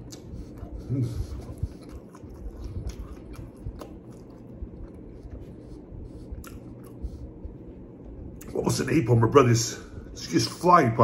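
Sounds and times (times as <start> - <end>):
man chewing food: 0.0 - 8.6.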